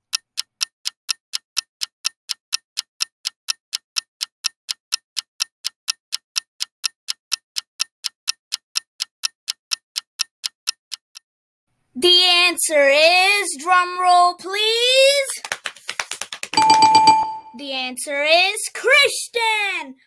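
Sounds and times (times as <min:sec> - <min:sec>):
clock ticking: 0:00.0 - 0:11.3.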